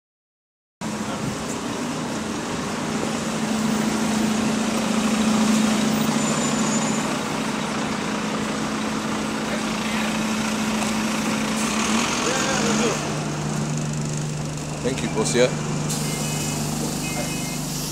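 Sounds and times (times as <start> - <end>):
bus diesel engine running: 0.8 - 17.9
street traffic noise: 0.8 - 17.9.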